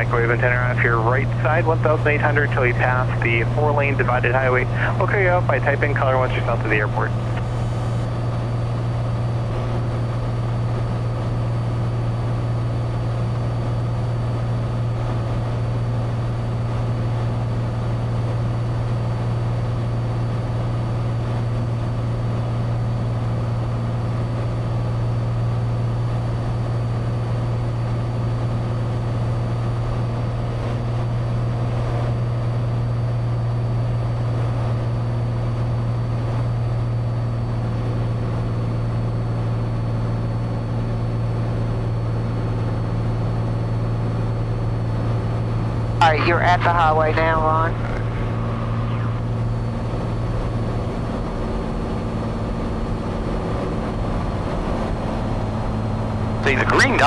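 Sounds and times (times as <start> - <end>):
airplane engine and propeller droning: 0.0 - 57.0.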